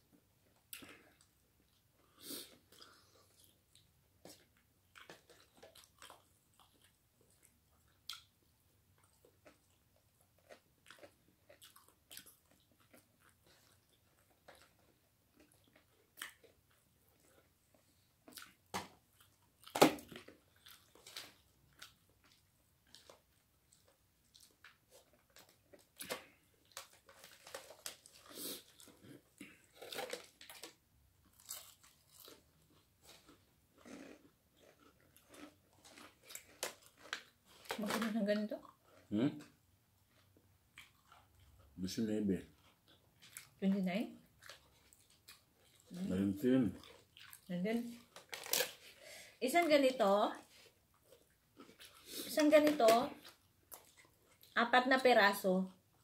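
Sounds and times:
crunching fried chicken: 0:18.3 - 0:38.8, 0:44.3 - 0:49.0.

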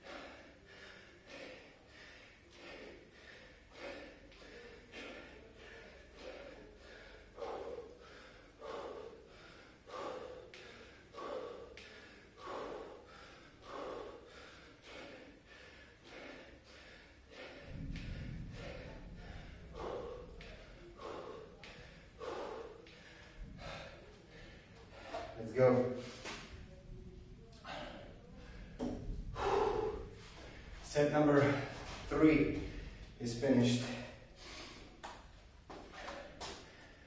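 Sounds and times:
man breathing hard: 0:00.0 - 0:37.0
low rumble: 0:17.6 - 0:21.0.

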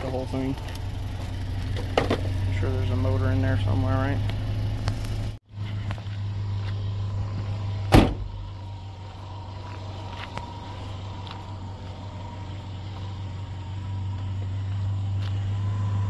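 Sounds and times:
vehicle engine idling: 0:00.0 - 0:16.0
loud thump: 0:07.9 - 0:08.4.

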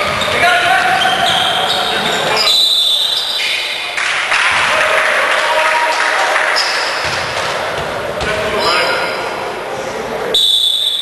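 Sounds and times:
basketball court noise: 0:00.0 - 0:09.6.

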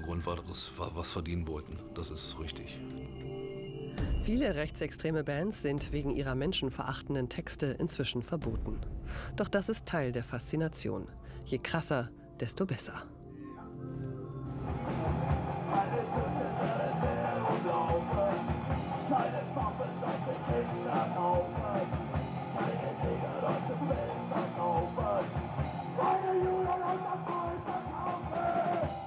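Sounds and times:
punk rock music: 0:14.5 - 0:29.0
drum kit: 0:14.6 - 0:29.0
person singing: 0:14.6 - 0:29.0.

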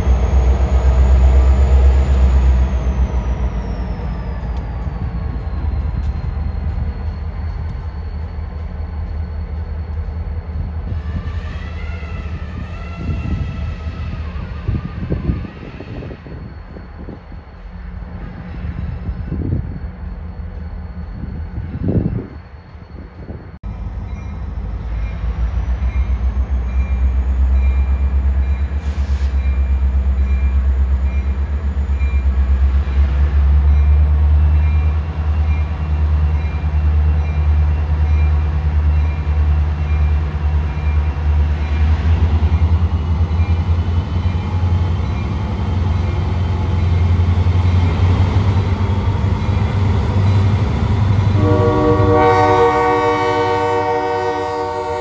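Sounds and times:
diesel locomotive engine rumbling: 0:00.0 - 0:55.0
locomotive air horn: 0:51.3 - 0:55.0.

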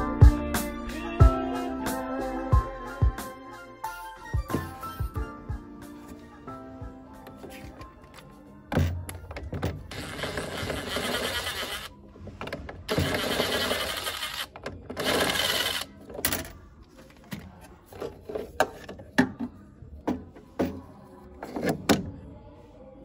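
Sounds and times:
plastic parts clicking and knocking: 0:08.0 - 0:20.8.

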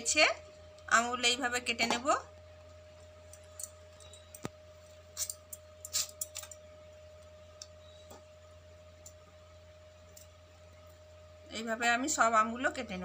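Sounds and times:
faint steady hum: 0:00.0 - 0:13.0
knife clicking and scraping: 0:05.2 - 0:06.6.

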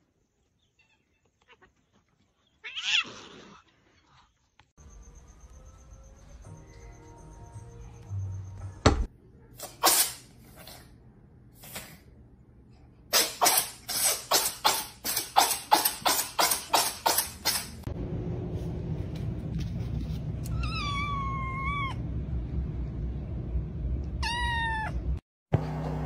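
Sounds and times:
cat meowing: 0:20.5 - 0:22.0, 0:24.2 - 0:25.0.

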